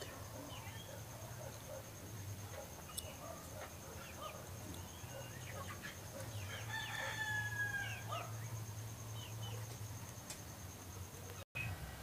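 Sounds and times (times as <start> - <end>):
rooster crowing: 6.3 - 8.4.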